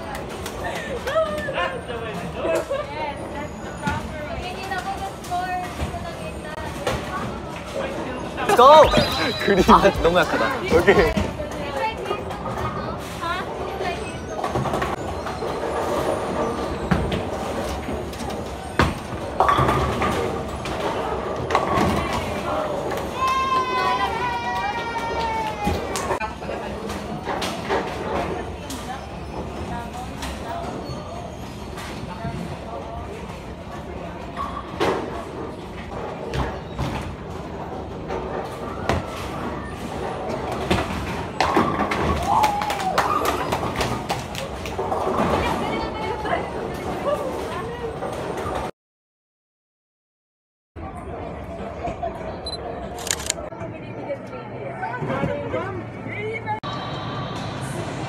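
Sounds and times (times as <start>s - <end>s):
bowling balls rolling on lanes: 6.6s - 23.2s, 34.7s - 48.7s.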